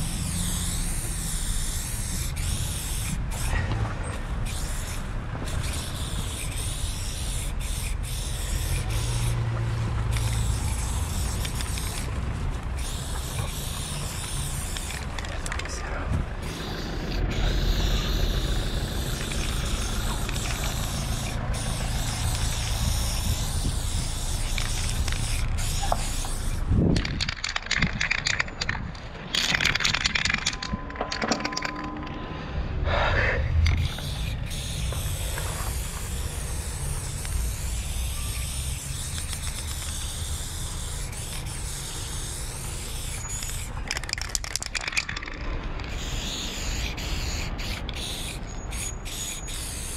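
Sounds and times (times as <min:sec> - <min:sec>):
spray-paint can hissing: 0:00.0 - 0:03.5, 0:04.4 - 0:12.2, 0:12.8 - 0:15.7, 0:16.4 - 0:28.5, 0:29.3 - 0:30.6, 0:33.6 - 0:49.9
low rumble of street noise: 0:00.0 - 0:49.9.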